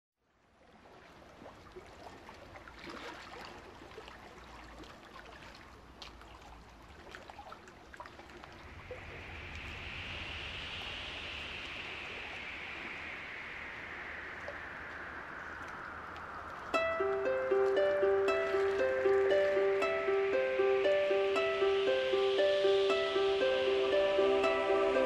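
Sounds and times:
small splashes and drips: 0:00.5 - 0:09.1
running water: 0:00.8 - 0:25.0.

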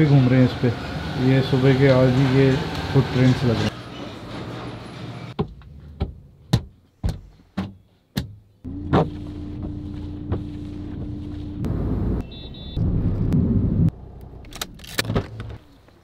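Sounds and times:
windscreen washer motor whine: 0:08.7 - 0:14.0.

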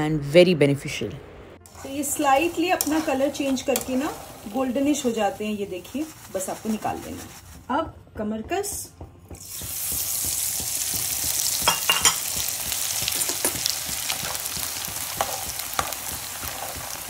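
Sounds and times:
ghee sizzling in a wok: 0:01.7 - 0:07.8, 0:09.3 - 0:17.0
spoon stirring: 0:01.7 - 0:07.9, 0:09.3 - 0:17.0
sharp pops of frying gum: 0:07.8 - 0:17.0.

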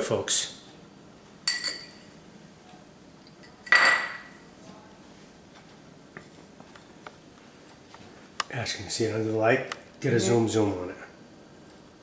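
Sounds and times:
ceramic plate clinking: 0:01.5 - 0:02.1, 0:03.4 - 0:04.4.

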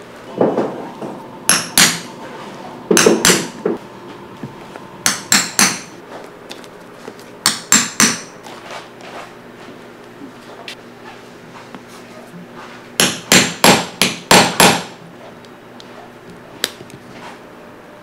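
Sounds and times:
hammer tapping a hand punch: 0:01.5 - 0:02.0, 0:02.9 - 0:03.5, 0:05.1 - 0:05.9, 0:07.4 - 0:08.3, 0:13.0 - 0:14.9.

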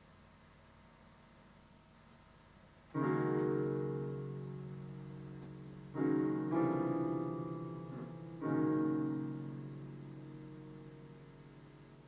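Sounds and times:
digital piano chords: 0:02.9 - 0:12.0.

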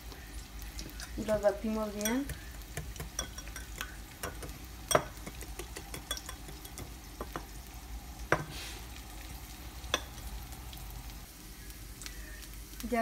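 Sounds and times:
onion sizzling in oil: 0:00.0 - 0:13.0
whisk clicking against glass bowl: 0:02.0 - 0:06.9.

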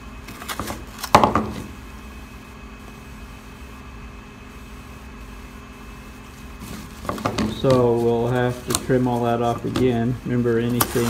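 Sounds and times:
low machine hum: 0:00.0 - 0:11.0
handling noise: 0:06.4 - 0:11.0.

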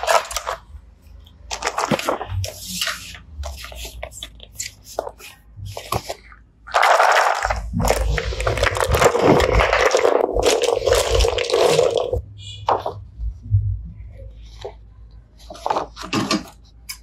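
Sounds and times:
cardboard cards rustling: 0:00.0 - 0:13.0
plastic pieces clattering on table: 0:05.1 - 0:12.9.

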